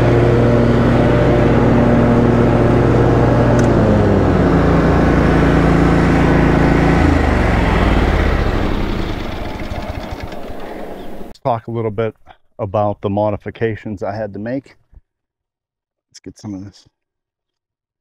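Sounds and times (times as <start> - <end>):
lawn mower engine running: 0.0 - 11.3.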